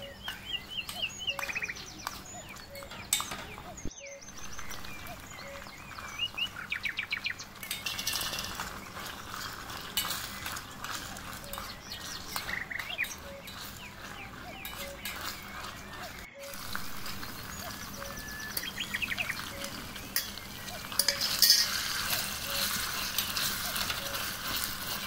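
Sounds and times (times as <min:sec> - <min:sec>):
birds chirping: 0:00.0 - 0:25.0
metal spoon scraping a brass pot: 0:11.3 - 0:15.8, 0:19.4 - 0:25.0.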